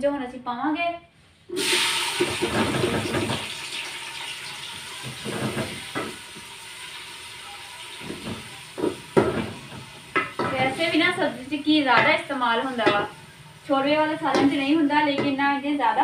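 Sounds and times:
onions sizzling in a pot: 1.5s - 16.0s.

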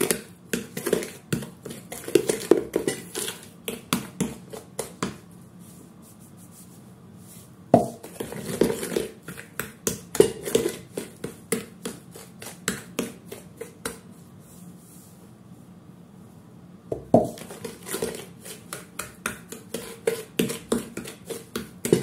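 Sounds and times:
fork scraping a mixing bowl: 0.0s - 5.0s, 7.9s - 14.6s, 17.3s - 22.0s.

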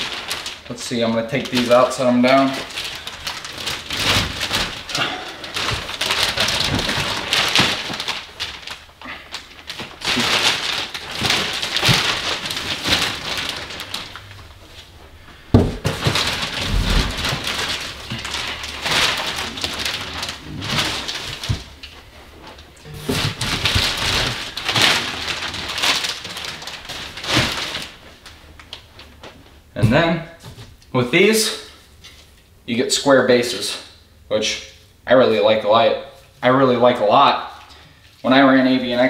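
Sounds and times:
plastic bags crinkling: 0.0s - 29.8s.

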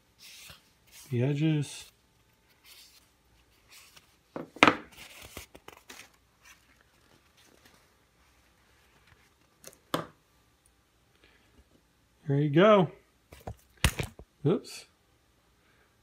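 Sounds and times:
cloth rag rubbing wooden spinner: 0.0s - 1.9s.

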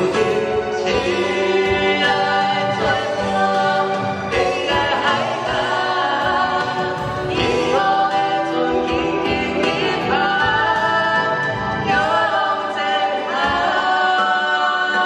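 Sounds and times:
man and woman singing duet: 0.0s - 15.0s
musical accompaniment: 0.0s - 15.0s.

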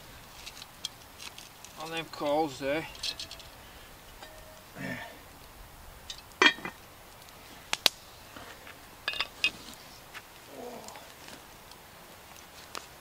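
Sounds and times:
cast iron lid clanking onto pot: 2.8s - 5.0s, 6.1s - 6.8s, 9.0s - 9.5s.

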